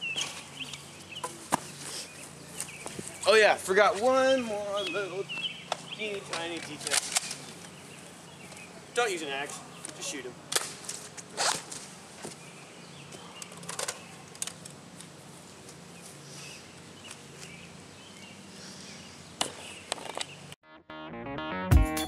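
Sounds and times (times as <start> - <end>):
outdoor yard ambience: 0.0 - 20.6
music: 20.6 - 22.0.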